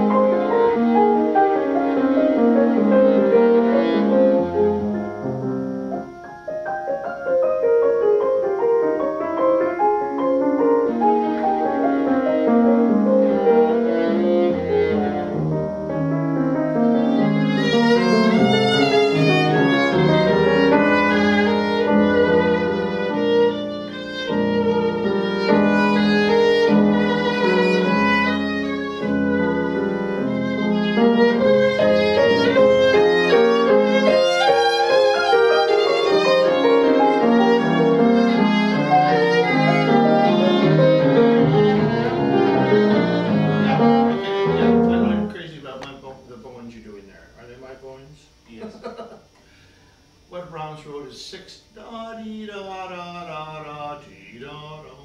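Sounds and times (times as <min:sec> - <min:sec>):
bowed viola with vibrato: 0:00.0 - 0:05.1, 0:10.6 - 0:15.8, 0:16.8 - 0:45.3
piano accompaniment: 0:00.0 - 0:47.4.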